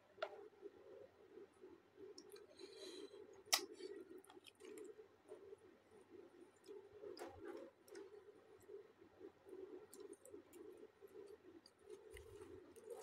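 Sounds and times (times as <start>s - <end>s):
person chewing food: 2.2s - 8.4s, 9.6s - 13.0s
wet mouth clicks: 3.5s - 4.9s.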